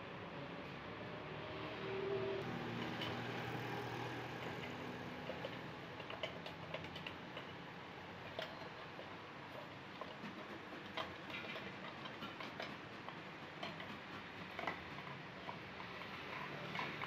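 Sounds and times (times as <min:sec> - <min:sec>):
steady background noise: 0:00.0 - 0:17.0.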